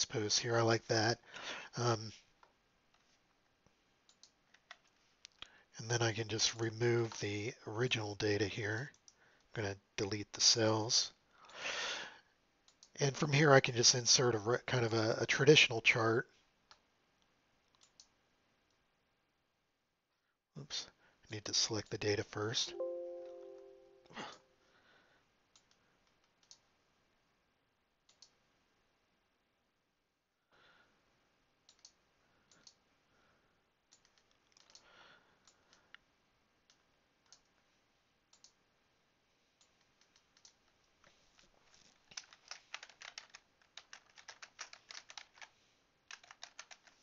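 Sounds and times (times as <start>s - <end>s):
computer mouse clicks: 4.1s - 5.4s, 17.7s - 18.8s, 25.5s - 26.7s, 28.1s - 28.4s, 31.7s - 32.8s, 33.9s - 35.9s, 36.7s - 37.6s, 38.3s - 38.6s, 39.6s - 40.8s, 41.7s - 45.5s
keyboard typing: 33.9s - 34.9s, 41.7s - 47.0s.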